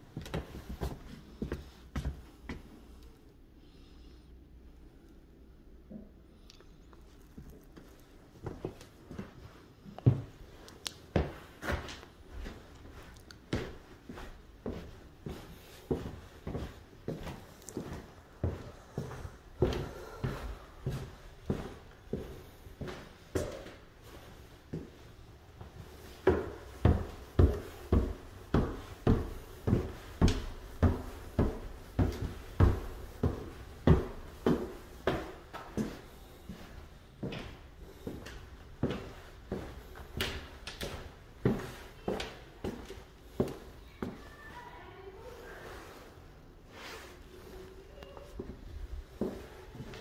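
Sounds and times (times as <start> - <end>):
footsteps on hardwood floor: 0.1 - 2.7, 7.4 - 44.7, 46.7 - 50.0
footsteps climbing stairs: 25.6 - 44.2.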